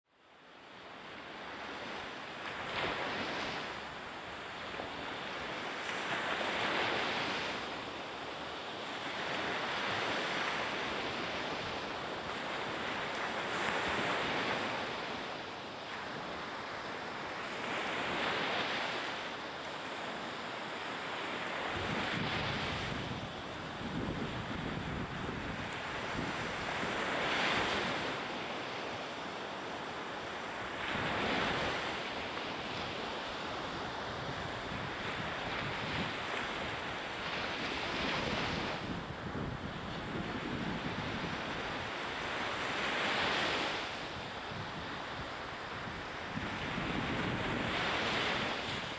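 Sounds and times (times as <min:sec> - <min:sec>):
sea waves washing in: 0:00.9 - 0:48.9.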